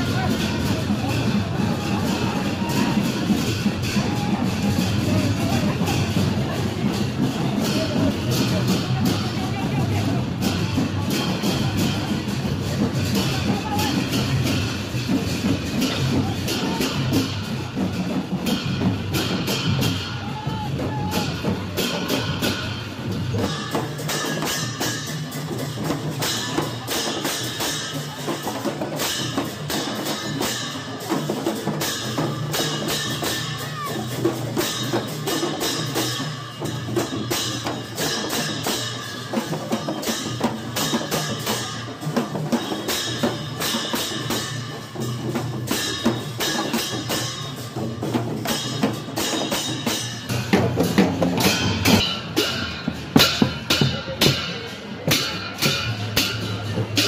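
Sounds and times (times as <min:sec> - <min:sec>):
drums beaten in fast rhythm: 0:00.0 - 0:57.0
hand cymbals clashing: 0:00.0 - 0:57.0.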